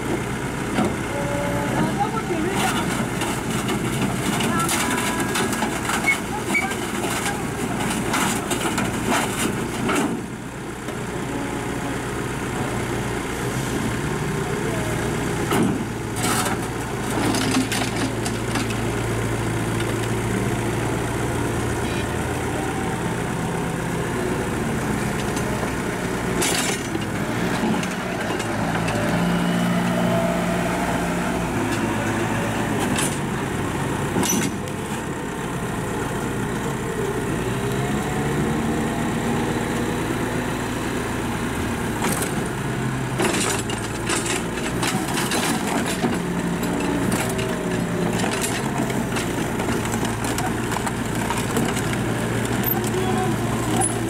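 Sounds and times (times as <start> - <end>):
excavator diesel engine: 0.0 - 54.0
wheel loader engine running: 0.0 - 54.0.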